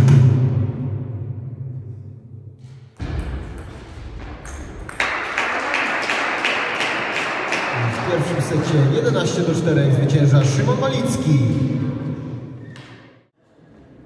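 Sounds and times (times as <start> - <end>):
music: 0.0 - 2.4.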